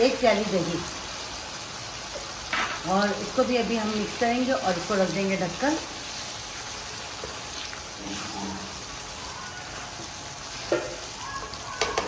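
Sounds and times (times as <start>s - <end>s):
food sizzling in a pan: 0.0s - 12.0s
spatula knocking on pan: 10.7s - 11.1s, 11.8s - 12.0s.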